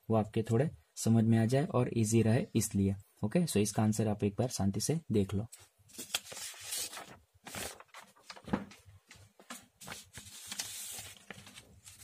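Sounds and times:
paper sheets rustling and sliding: 0:05.9 - 0:12.0.

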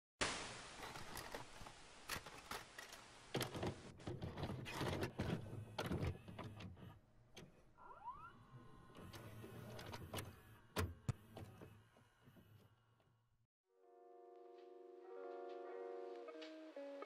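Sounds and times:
loading mechanism clicks and clunks: 0:02.1 - 0:07.8, 0:09.0 - 0:11.8
tape hiss: 0:14.3 - 0:17.0.

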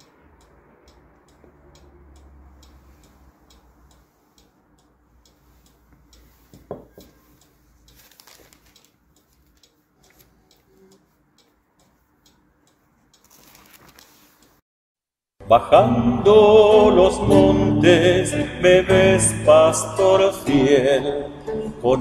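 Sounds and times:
quick regular ticking: 0:00.0 - 0:06.4
soft rustle: 0:05.2 - 0:14.6.

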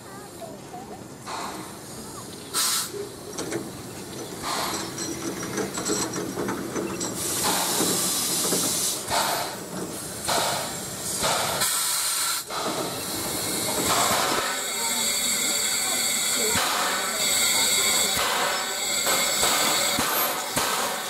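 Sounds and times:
steam locomotive rumble: 0:00.0 - 0:21.0
steam hissing bursts: 0:01.3 - 0:03.0, 0:04.4 - 0:05.0, 0:07.1 - 0:21.0.

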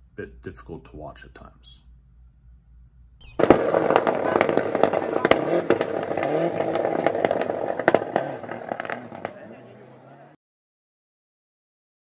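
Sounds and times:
exhaust pops and bangs: 0:03.2 - 0:09.8
car engine revving hard: 0:03.4 - 0:10.4.

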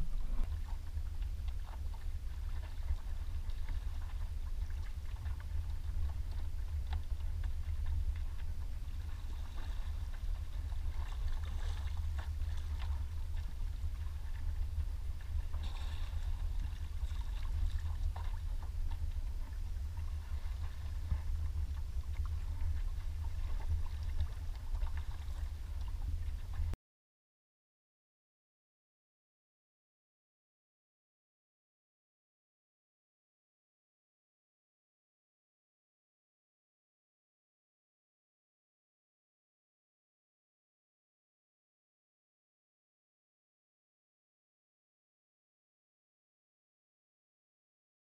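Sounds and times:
water lapping against kayak hull: 0:00.0 - 0:26.8
wind rumble on microphone: 0:00.0 - 0:26.8.

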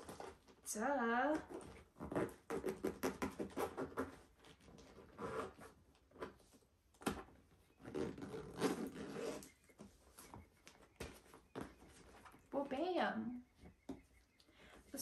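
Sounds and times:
zipper: 0:01.4 - 0:05.8, 0:07.8 - 0:09.6
fabric bag rubbing and scraping: 0:04.8 - 0:05.8, 0:07.8 - 0:09.6.

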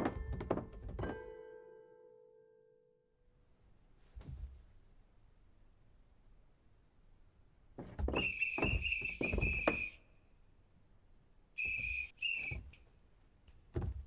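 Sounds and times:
soft bump: 0:04.1 - 0:04.7, 0:07.8 - 0:09.9, 0:13.7 - 0:14.0
cartoon whistle-like squeaks: 0:08.1 - 0:10.0, 0:11.6 - 0:12.7.

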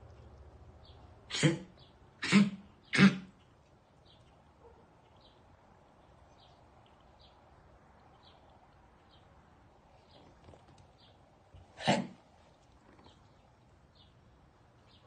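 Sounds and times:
small dog coughing: 0:01.3 - 0:03.5, 0:11.7 - 0:12.2.

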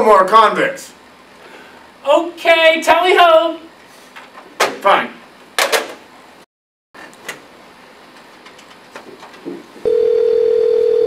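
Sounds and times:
steady dial tone: 0:09.8 - 0:11.0.

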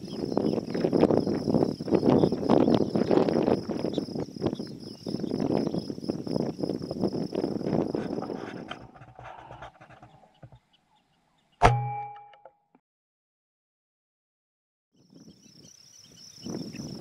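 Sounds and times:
insects chirping: 0:00.0 - 0:10.6, 0:15.0 - 0:17.0
wind buffeting microphone: 0:00.0 - 0:10.6, 0:15.0 - 0:17.0
metallic ring: 0:11.6 - 0:12.5.

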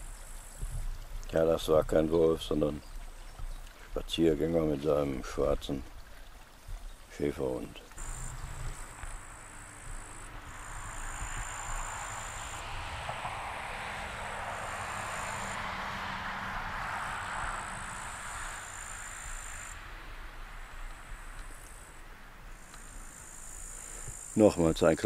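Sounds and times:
insects chirring: 0:00.0 - 0:01.0, 0:06.8 - 0:19.8, 0:20.4 - 0:25.0
broad rushing noise: 0:08.0 - 0:20.6.

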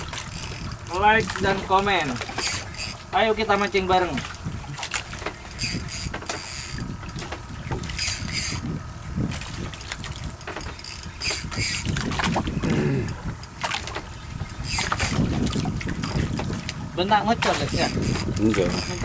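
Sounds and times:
fishing reel whirring: 0:00.0 - 0:04.5, 0:05.4 - 0:08.8, 0:09.7 - 0:12.1, 0:14.4 - 0:16.8, 0:17.6 - 0:19.0
low steady rumble: 0:00.0 - 0:19.0.

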